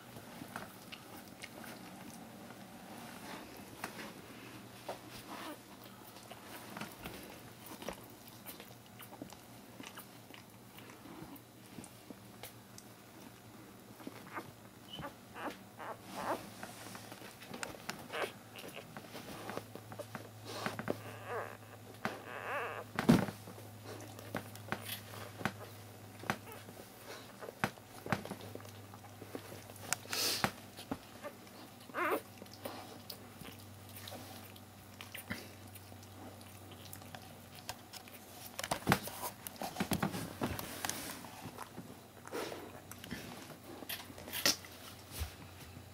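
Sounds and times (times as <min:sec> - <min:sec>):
low steady hum: 0:00.0 - 0:45.9
puppy squeaks: 0:14.3 - 0:16.4, 0:21.0 - 0:22.8.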